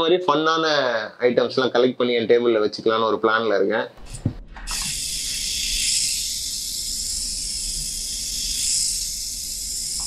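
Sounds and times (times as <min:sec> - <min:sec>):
toy tank motor buzzing: 0:04.7 - 0:10.0.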